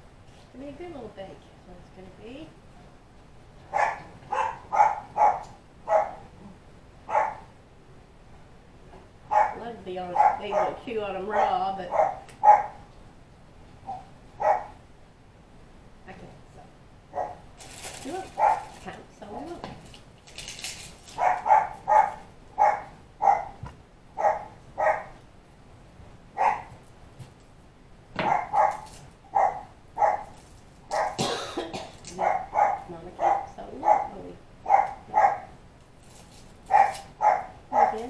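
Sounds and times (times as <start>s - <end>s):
puppy yapping: 3.7s - 6.3s, 7.1s - 7.5s, 9.3s - 9.6s, 10.2s - 12.8s, 13.8s - 14.8s, 17.2s - 17.4s, 18.4s - 18.7s, 21.2s - 25.2s, 26.4s - 26.8s, 28.2s - 30.3s, 30.9s - 31.2s, 32.1s - 35.6s, 36.7s - 38.0s.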